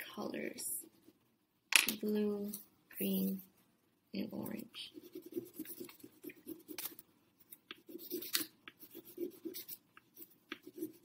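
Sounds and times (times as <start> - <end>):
pencil scribbling on paper: 4.9 - 6.9, 7.8 - 11.0.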